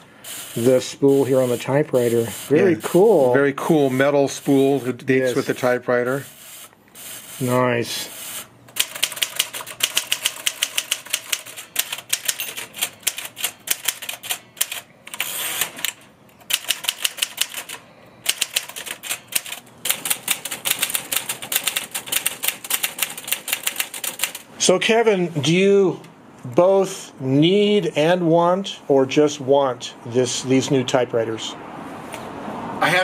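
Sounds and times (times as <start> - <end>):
typewriter keys clacking: 8.7 - 24.4.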